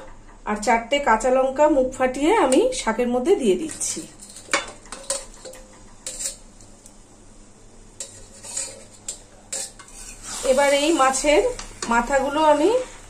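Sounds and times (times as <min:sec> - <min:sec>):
metal spatula scraping plate: 0:04.2 - 0:06.5, 0:08.0 - 0:12.8.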